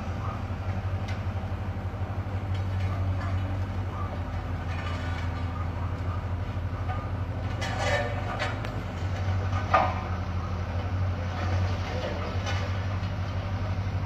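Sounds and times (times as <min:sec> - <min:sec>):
road roller diesel engine running: 0:00.0 - 0:14.0
faint clicks and scrapes: 0:02.5 - 0:10.1, 0:10.8 - 0:13.4.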